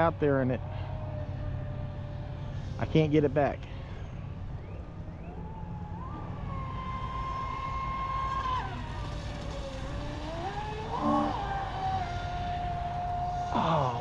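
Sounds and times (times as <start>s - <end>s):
toy boat motor whining: 8.1s - 14.0s.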